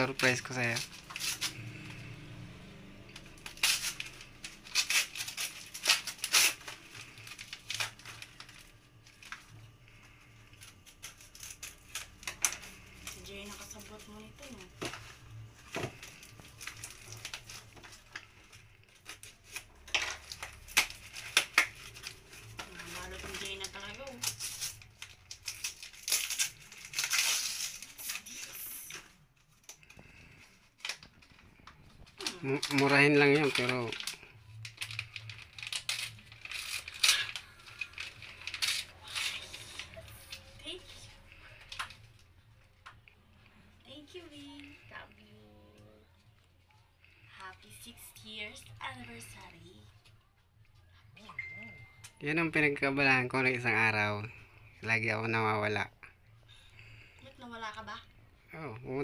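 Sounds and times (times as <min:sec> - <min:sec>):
wrapping paper tearing: 0:00.0 - 0:42.4.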